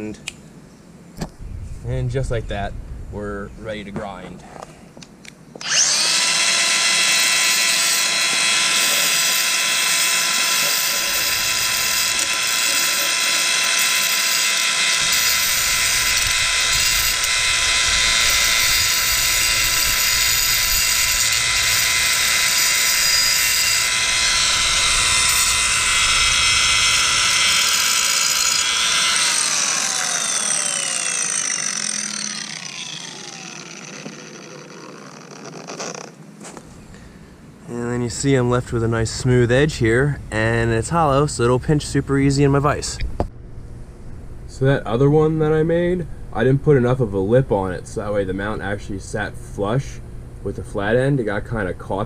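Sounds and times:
angle grinder whining: 0:05.6 - 0:36.2
grinder winding down: 0:05.6 - 0:36.2.

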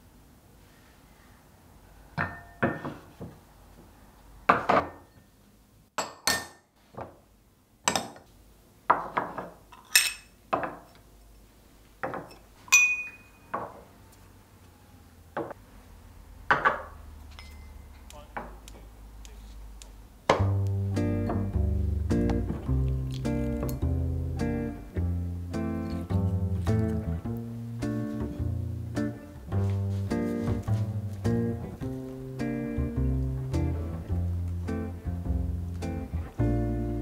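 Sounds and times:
ceramic bowls clinking: 0:09.7 - 0:10.4, 0:12.2 - 0:13.7, 0:16.6 - 0:17.8.

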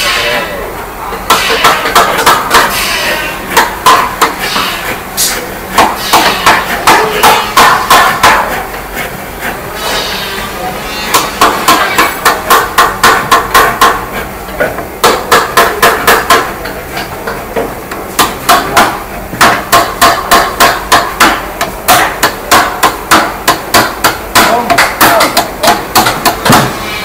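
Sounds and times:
hammer striking wood: 0:01.3 - 0:02.7, 0:03.5 - 0:04.4, 0:05.8 - 0:08.5, 0:11.1 - 0:14.1, 0:14.7 - 0:26.8.

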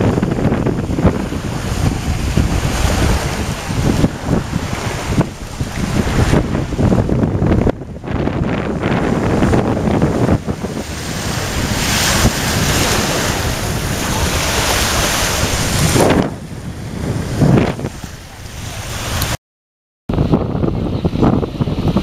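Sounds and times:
water noise: 0:00.0 - 0:19.4, 0:20.1 - 0:22.0
wind rushing over microphone: 0:00.0 - 0:19.4, 0:20.1 - 0:22.0.

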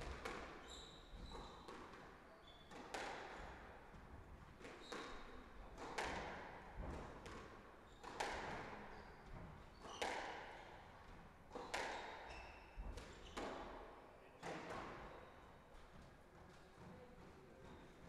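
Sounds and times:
squash ball hitting rackets and walls: 0:00.0 - 0:03.9, 0:04.6 - 0:13.8, 0:14.4 - 0:15.1.

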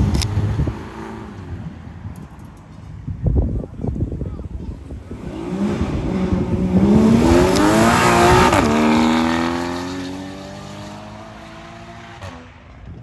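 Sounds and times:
sports car engine accelerating: 0:05.1 - 0:12.5.

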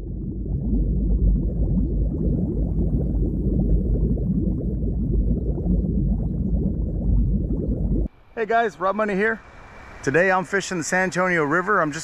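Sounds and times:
river water bubbling: 0:00.0 - 0:08.1.

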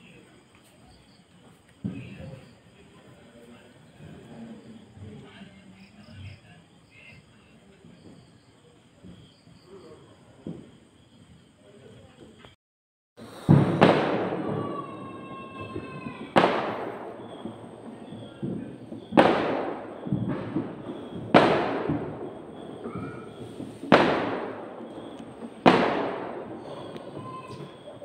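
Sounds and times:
loud booms with long tails: 0:13.2 - 0:28.0.

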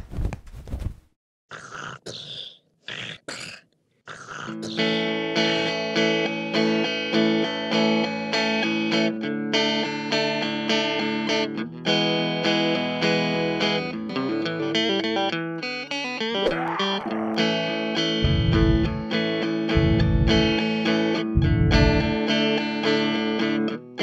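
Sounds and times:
electric guitar plucked notes: 0:05.0 - 0:24.0.

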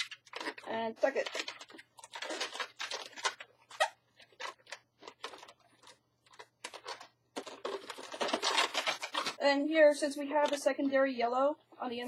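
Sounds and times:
balloons squeaking and rubbing: 0:00.0 - 0:09.4.

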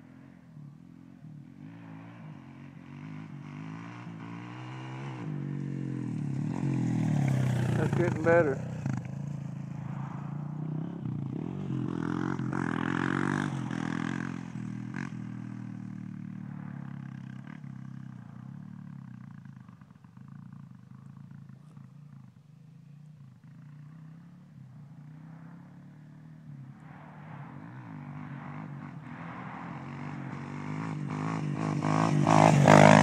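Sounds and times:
dirt bike engine revving: 0:02.8 - 0:18.6, 0:23.6 - 0:33.0.

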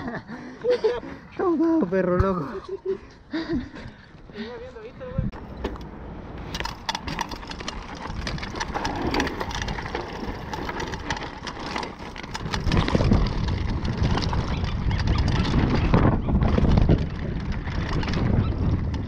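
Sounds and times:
tyres crunching over dirt: 0:05.3 - 0:19.0
bike rattling clicks: 0:05.4 - 0:19.0.

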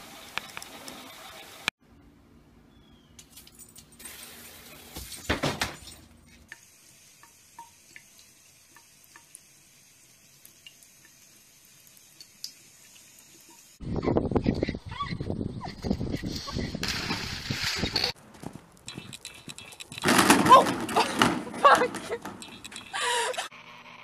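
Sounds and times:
small ticks and drips: 0:06.5 - 0:13.8.

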